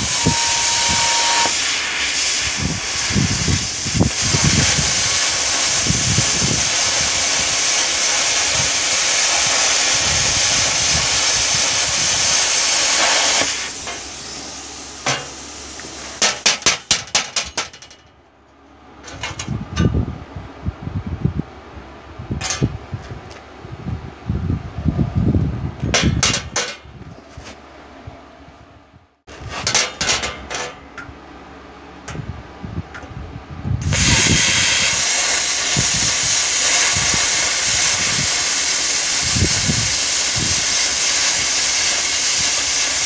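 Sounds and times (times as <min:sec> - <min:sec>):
sharp pulses: 0:00.0 - 0:01.8
plasma cutter hissing: 0:00.0 - 0:16.2, 0:33.8 - 0:43.0.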